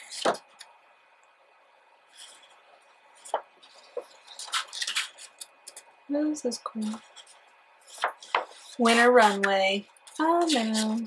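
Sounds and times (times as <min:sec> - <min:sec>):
magazine pages turning: 0:03.2 - 0:05.8, 0:07.0 - 0:09.0.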